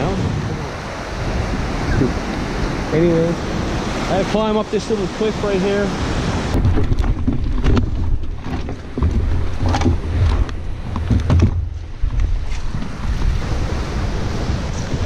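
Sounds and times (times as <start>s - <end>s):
wind buffeting microphone: 0.0s - 4.8s, 5.7s - 15.0s
river rapids rushing: 0.0s - 6.6s
canoe knocks and bumps: 6.5s - 13.4s.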